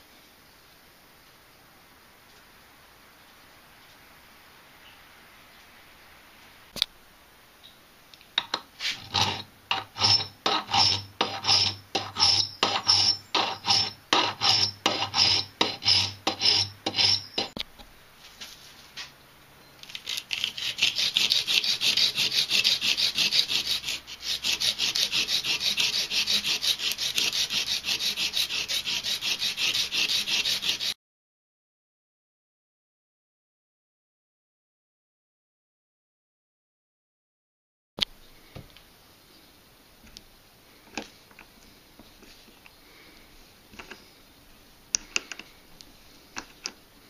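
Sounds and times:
hand file rasping on steel: 0:08.8 - 0:17.6, 0:20.0 - 0:31.0.

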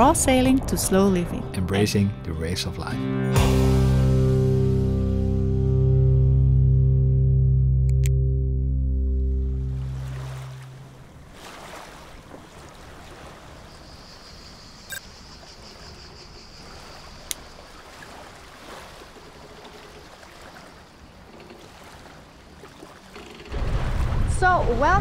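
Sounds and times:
water washing against hull: 0:09.5 - 0:14.5, 0:15.4 - 0:25.0
light wind: 0:09.8 - 0:25.0.

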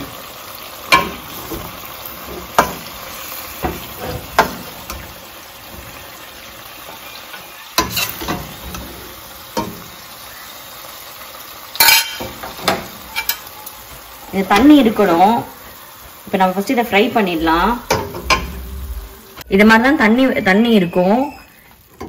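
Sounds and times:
juices sizzling in a pot: 0:00.0 - 0:22.0
metal spatula knocking on pot: 0:02.4 - 0:02.9.

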